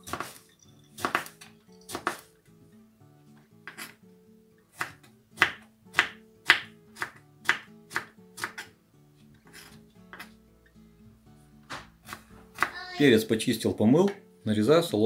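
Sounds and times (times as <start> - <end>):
knife chopping on wooden board: 1.0 - 2.2, 3.6 - 4.0, 4.8 - 8.7, 11.7 - 12.8.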